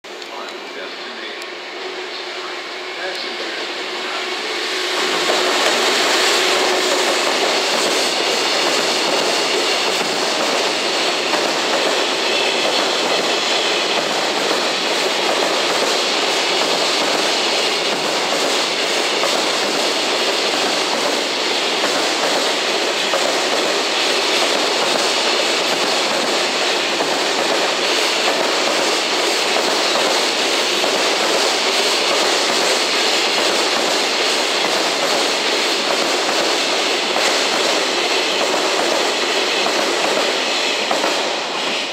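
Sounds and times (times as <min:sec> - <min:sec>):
freight train passing: 0:00.0 - 0:41.9.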